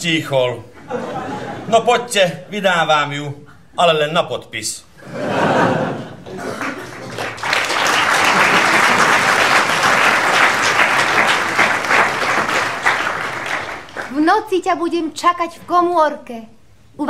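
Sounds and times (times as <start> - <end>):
audience applauding: 6.2 - 14.2.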